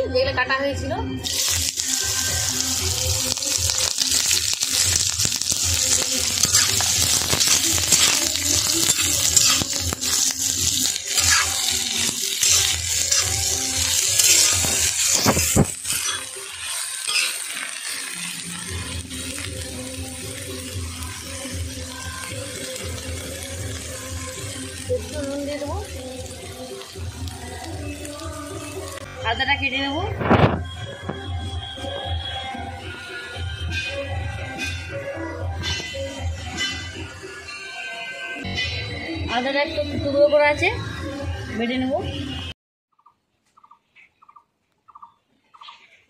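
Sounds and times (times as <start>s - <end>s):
vegetables sizzling in hot oil: 1.2s - 30.1s
metal spatula scraping pan: 6.4s - 17.8s.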